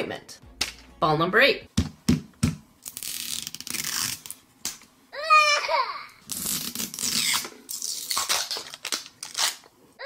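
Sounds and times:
plastic wrap crinkling: 6.3 - 9.7.

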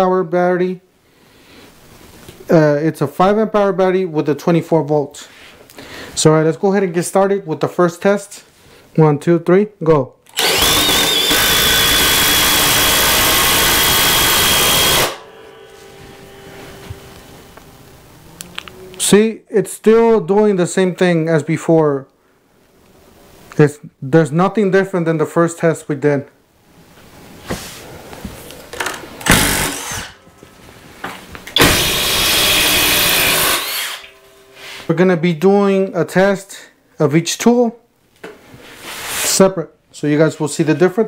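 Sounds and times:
impact drivers hammering: 10.3 - 15.3, 29.2 - 30.2, 31.5 - 34.1.

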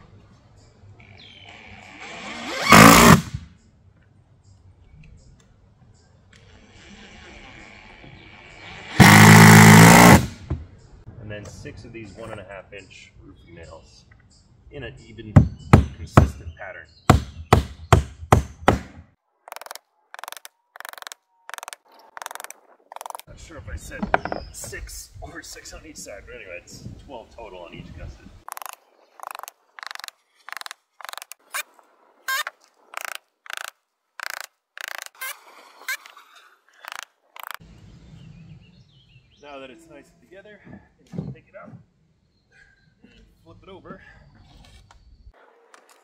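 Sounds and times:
cordless drill driving screw: 2.0 - 3.2, 9.0 - 10.3, 33.0 - 35.2
hammer driving nails: 2.6 - 3.4, 9.0 - 10.4, 17.1 - 23.2, 33.0 - 35.2
rapid thin clicking: 19.5 - 23.3, 28.5 - 31.4, 36.8 - 37.6.

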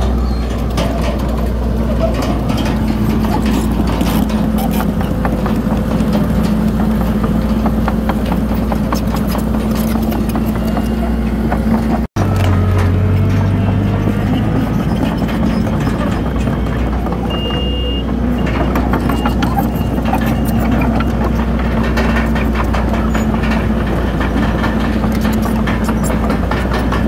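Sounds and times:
bulldozer diesel engine: 0.0 - 27.0
steel tracks clanking: 0.0 - 27.0.

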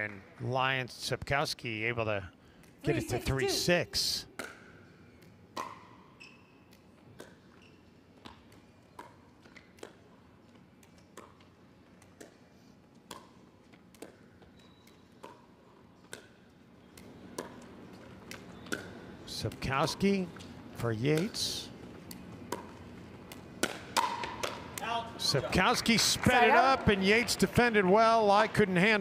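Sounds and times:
paddle hitting plastic ball: 22.5 - 24.9.

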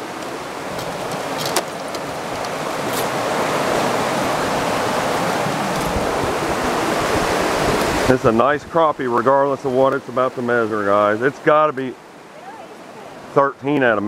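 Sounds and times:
flowing creek water: 0.0 - 14.0
backpack clicks: 0.2 - 3.1.

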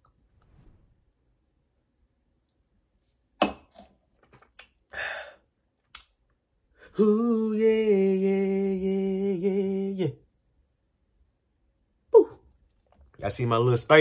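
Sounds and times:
man exhaling: 4.9 - 5.5.

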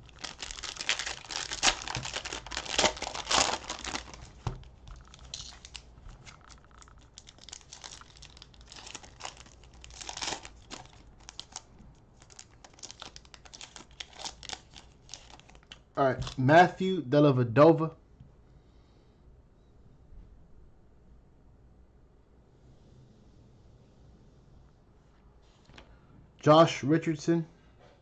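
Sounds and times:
plastic wrappers crinkling and tearing: 0.0 - 16.4.

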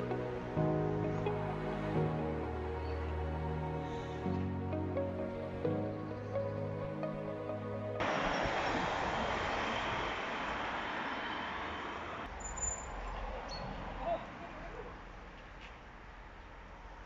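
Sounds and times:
traffic rushing: 6.4 - 17.0.

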